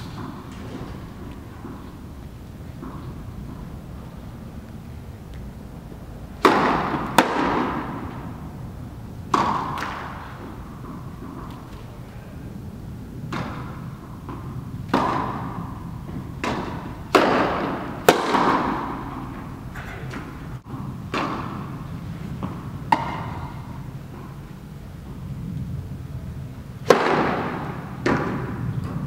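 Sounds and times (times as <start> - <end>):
tennis ball bouncing on court: 0.0 - 5.5, 6.4 - 11.9, 13.2 - 24.5, 26.8 - 29.0
tennis ball hitting racket: 0.0 - 5.6, 6.3 - 12.0, 13.2 - 24.5, 26.8 - 29.0.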